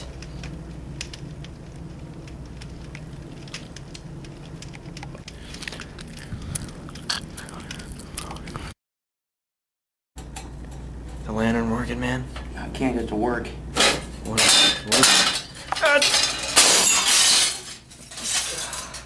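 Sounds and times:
steady low hum: 0.0s - 8.8s.

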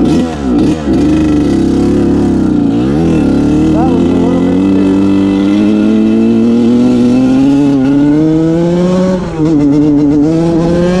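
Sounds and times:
two-stroke motorcycle engine: 0.0s - 11.0s.

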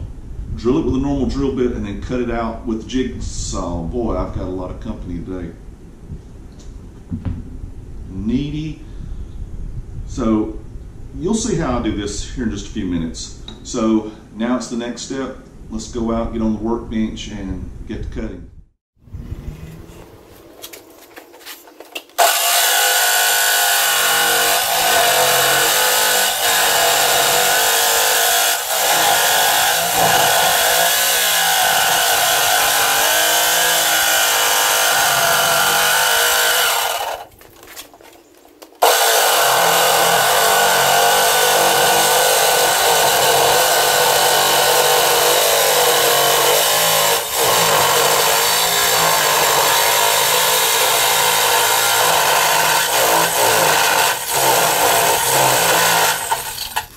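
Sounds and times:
jigsaw cutting sheet metal: 22.2s - 37.3s, 38.8s - 56.9s.

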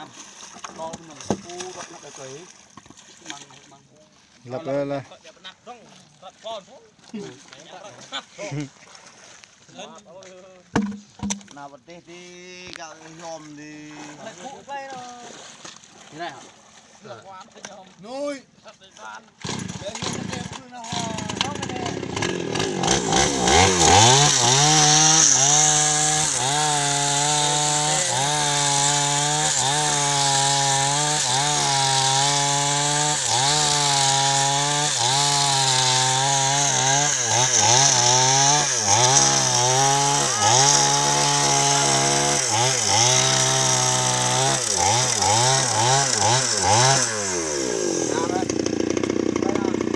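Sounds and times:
chainsaw cutting log: 0.6s - 1.9s, 10.8s - 11.5s, 19.3s - 49.9s.

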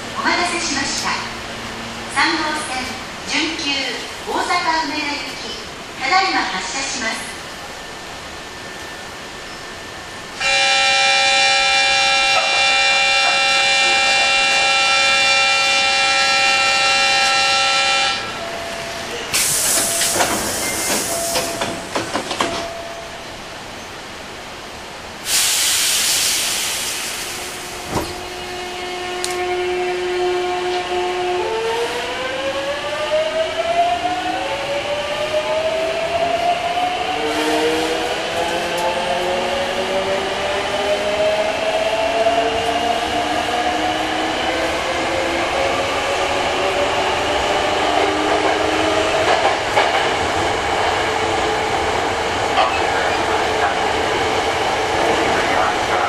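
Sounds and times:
compressed air hissing: 19.3s - 21.2s, 25.2s - 27.6s.

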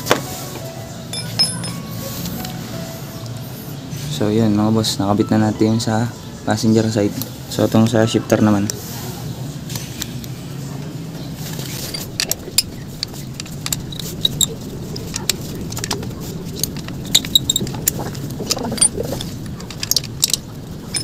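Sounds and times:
metallic clicks of hex key and bolts: 1.1s - 1.8s, 11.9s - 21.0s.

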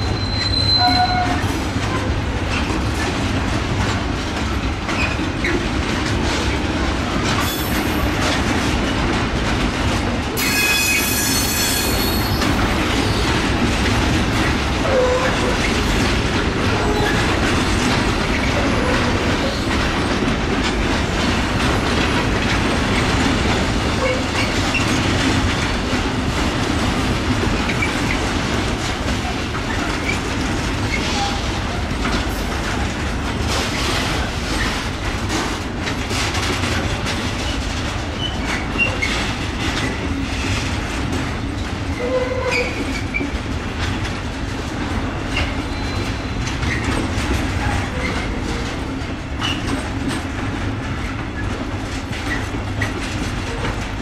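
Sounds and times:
high-pitched wheel squeal: 0.0s - 1.4s
freight train wheels rumbling: 0.0s - 54.0s.

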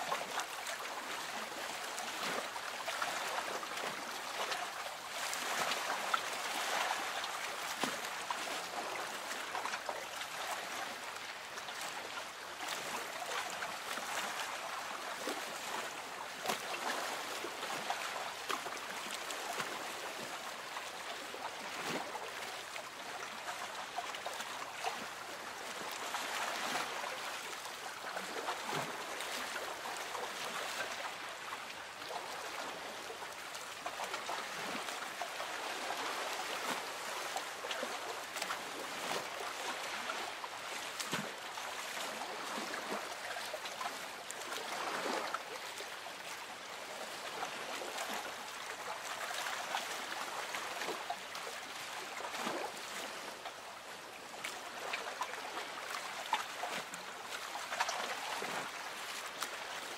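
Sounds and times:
water lapping against boat hull: 0.1s - 59.9s.

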